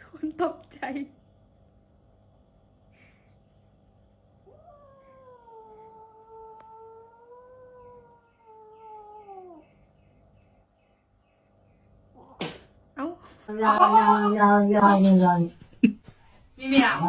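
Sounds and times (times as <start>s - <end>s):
kitten yowling: 4.5s - 9.7s.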